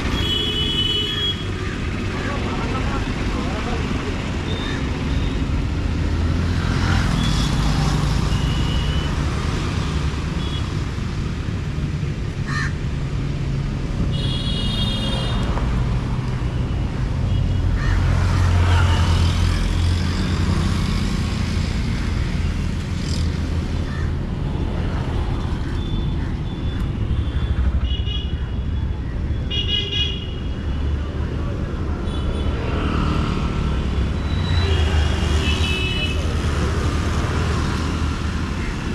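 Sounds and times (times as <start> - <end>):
traffic rumble: 0.0 - 38.9
vehicle horns honking: 0.1 - 1.5, 14.1 - 15.5.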